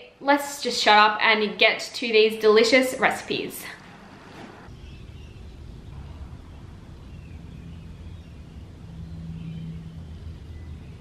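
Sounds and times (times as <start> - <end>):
low outdoor rumble: 3.0 - 11.0
steady low hum: 3.2 - 11.0
faint bird chirps: 4.7 - 11.0.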